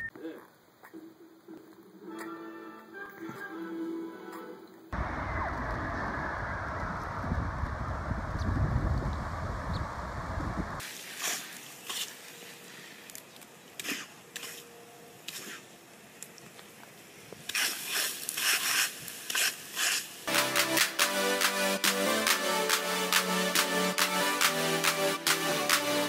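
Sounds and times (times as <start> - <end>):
wind buffeting microphone: 5.0 - 10.8
lawn sprinkler hissing spurts: 8.5 - 14.6, 15.2 - 22.1
electronic music: 20.3 - 26.0.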